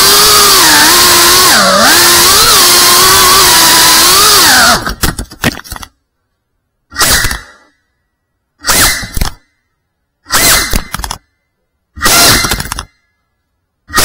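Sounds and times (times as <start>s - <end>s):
quadcopter motors whining: 0.0s - 4.9s, 12.0s - 12.8s.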